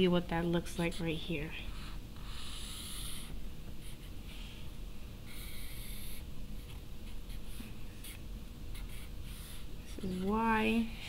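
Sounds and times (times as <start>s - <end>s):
marker scratching on paper: 5.3s - 10.8s.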